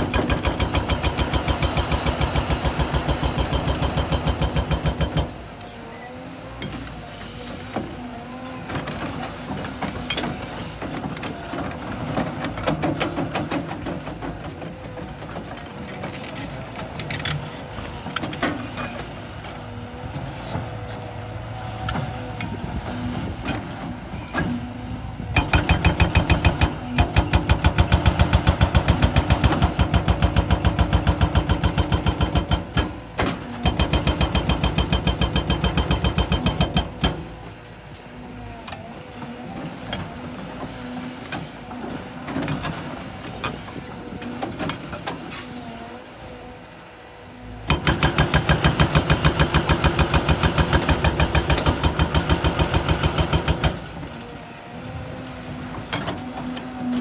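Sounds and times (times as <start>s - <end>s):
hydraulic hammer breaking rock: 25.4s - 37.3s, 47.7s - 53.9s.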